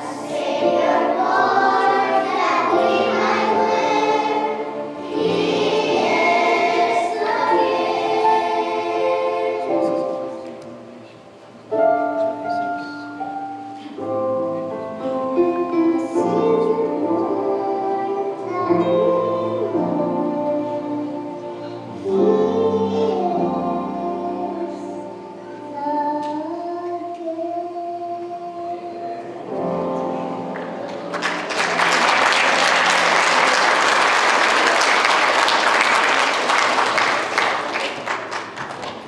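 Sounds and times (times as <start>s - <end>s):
children's choir singing: 0.0s - 11.1s, 14.1s - 39.0s
audience applause: 30.6s - 39.0s.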